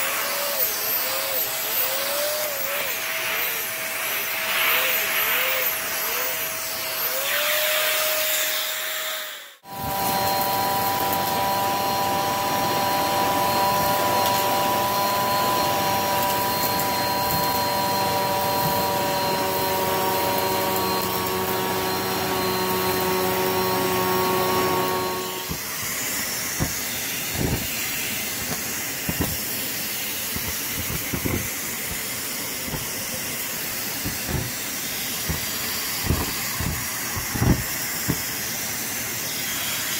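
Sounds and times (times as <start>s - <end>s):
vacuum whine on carpet: 0.0s - 39.9s
vacuum sucking up lint: 9.2s - 38.8s
stick vacuum on rug: 9.6s - 38.8s.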